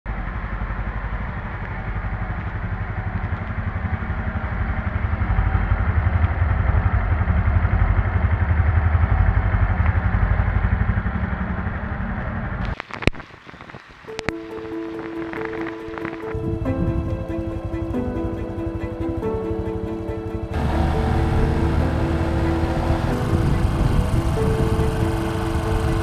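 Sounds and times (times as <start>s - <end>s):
motorcycle engine running: 0.1s - 12.8s, 15.4s - 26.0s.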